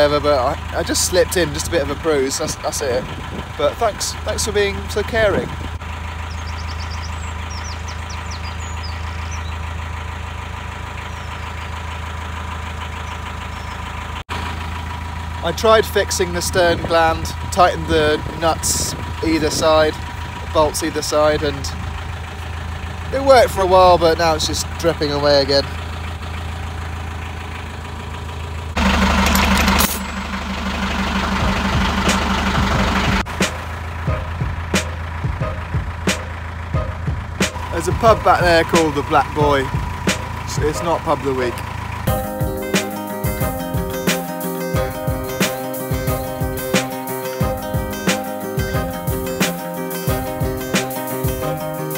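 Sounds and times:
boat diesel engine droning: 0:00.0 - 0:51.9
small bird chirping: 0:06.2 - 0:09.7, 0:11.0 - 0:11.9, 0:13.0 - 0:14.0.

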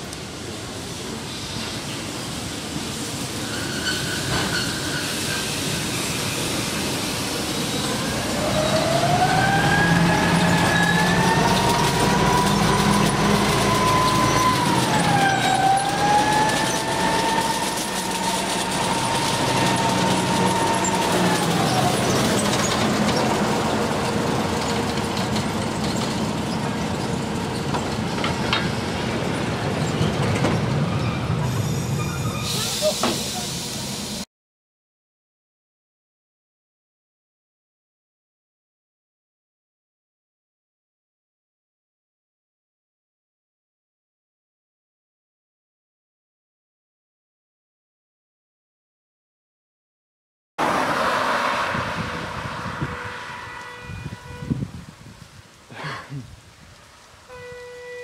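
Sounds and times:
train engine hum: 0:00.0 - 0:34.2, 0:50.6 - 0:58.0
rail noise: 0:00.0 - 0:34.3, 0:50.6 - 0:58.0
wheels squealing when braking: 0:03.0 - 0:33.8.

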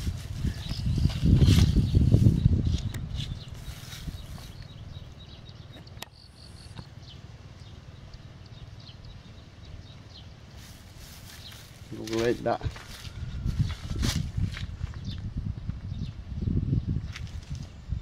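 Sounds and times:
insects chirping: 0:00.4 - 0:13.7.

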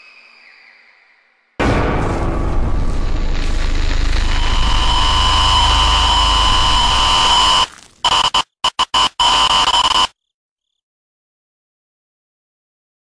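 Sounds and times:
harsh electronic static and hum: 0:02.9 - 0:10.1
high whining tones: 0:03.5 - 0:10.1.

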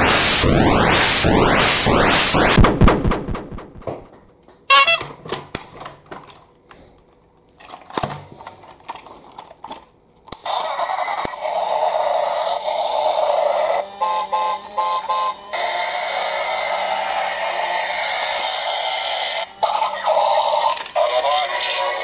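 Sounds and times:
electronic toots: 0:00.0 - 0:03.6, 0:04.7 - 0:05.1, 0:13.7 - 0:15.8
plastic toy trains clicking: 0:07.6 - 0:10.4, 0:20.3 - 0:22.0
toy engine whirring: 0:07.6 - 0:22.0.

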